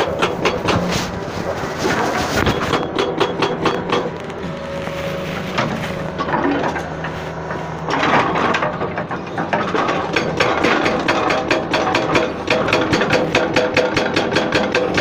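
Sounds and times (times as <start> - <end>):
excavator diesel engine humming: 0.0 - 15.0
fast clicking rattle: 9.4 - 15.0.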